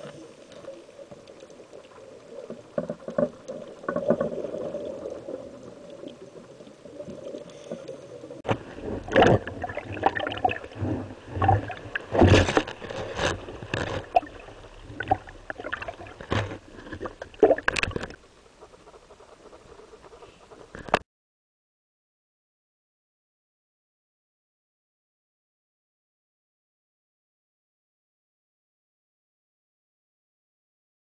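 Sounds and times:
underwater noise: 0:00.0 - 0:21.0
waves splashing: 0:07.3 - 0:20.2.

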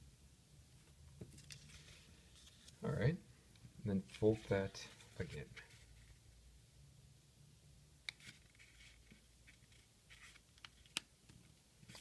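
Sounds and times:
paper rustling and creasing: 0:01.3 - 0:02.8, 0:08.2 - 0:11.0.

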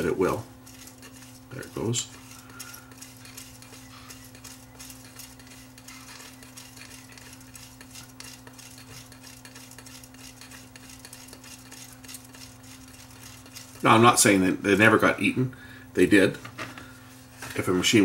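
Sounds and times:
tape rustling and ticking: 0:00.0 - 0:14.0.

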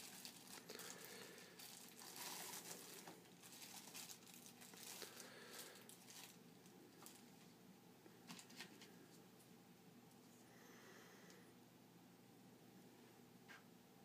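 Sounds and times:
plastic crinkling and rustling: 0:00.0 - 0:07.5, 0:08.2 - 0:09.2.

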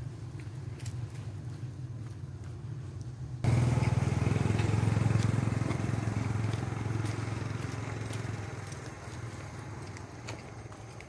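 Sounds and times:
vehicle engine running: 0:03.4 - 0:11.0.

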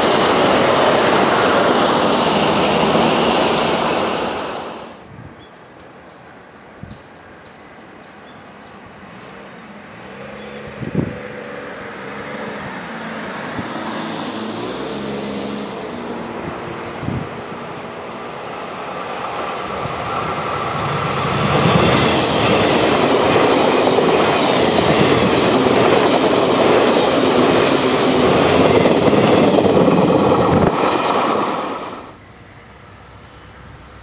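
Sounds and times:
train wheels rumbling on rail: 0:00.0 - 0:05.0, 0:09.2 - 0:34.0.

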